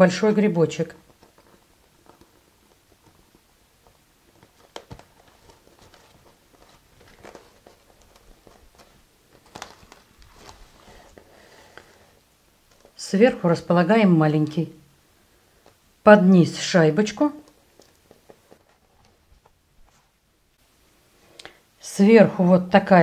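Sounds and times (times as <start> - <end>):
strap and plastic bag rustling: 0.9 - 11.3.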